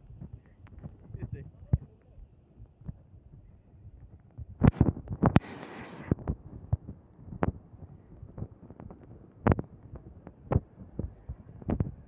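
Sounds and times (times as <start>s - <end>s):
hissing rustle: 5.4s - 6.1s.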